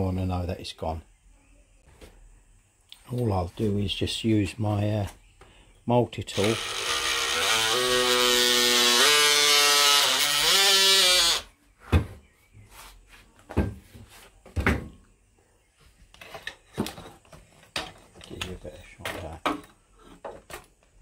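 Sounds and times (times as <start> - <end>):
electric multi-tool buzzing: 6.3 - 11.5.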